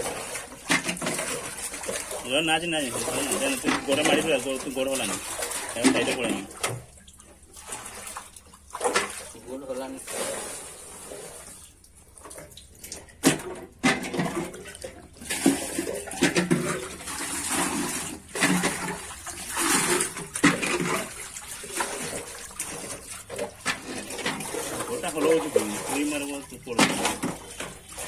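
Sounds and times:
water splashing and sloshing: 0:00.0 - 0:28.0.

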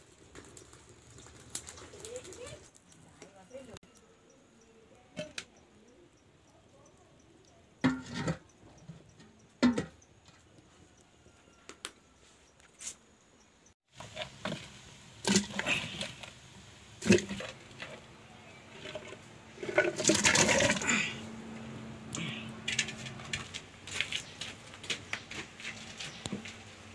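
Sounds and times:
clay pots knocking and scraping: 0:07.8 - 0:10.7, 0:13.9 - 0:21.2, 0:22.2 - 0:26.9.

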